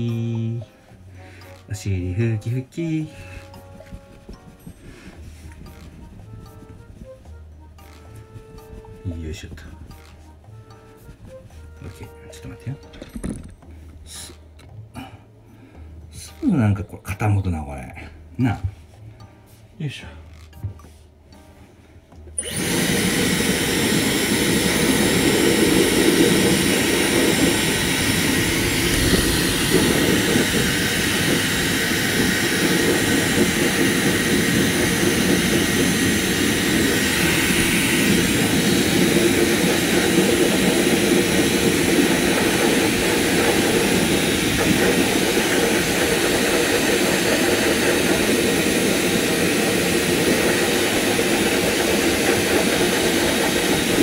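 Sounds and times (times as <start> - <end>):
hair dryer blowing air: 3.0 - 10.2, 22.4 - 54.0
faint high motor whine: 22.2 - 54.0.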